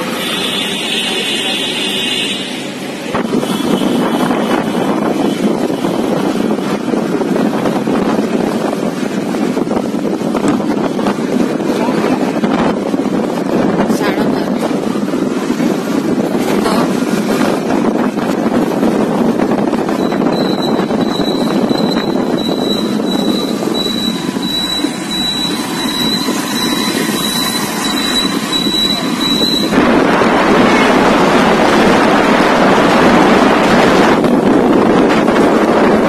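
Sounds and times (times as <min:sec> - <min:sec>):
tyres on wet road: 0:00.0 - 0:36.0
wind buffeting microphone: 0:02.6 - 0:36.0
high-pitched whine: 0:20.0 - 0:30.9.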